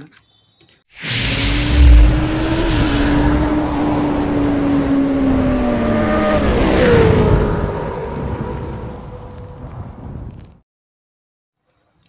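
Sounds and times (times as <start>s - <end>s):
rushing noise: 1.0s - 7.1s.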